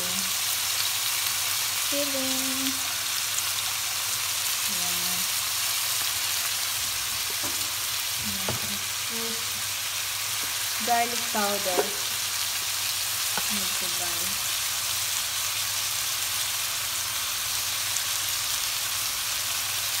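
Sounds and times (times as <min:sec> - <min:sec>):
food sizzling in oil: 0:00.0 - 0:20.0
light knocks on pan: 0:08.4 - 0:08.8, 0:11.7 - 0:12.1.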